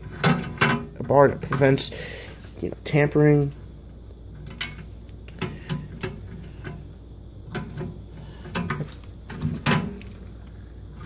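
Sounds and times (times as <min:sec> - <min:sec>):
metal cabinet door clunks and rattles: 0:00.0 - 0:01.8, 0:09.4 - 0:10.0.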